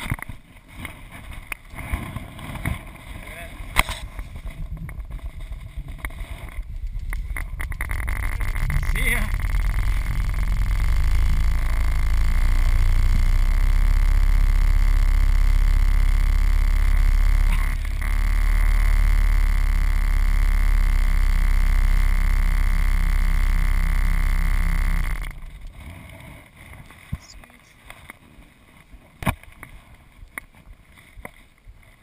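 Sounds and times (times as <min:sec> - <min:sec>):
steady high whine: 0:00.0 - 0:32.0
heavy low rumble: 0:02.9 - 0:27.4.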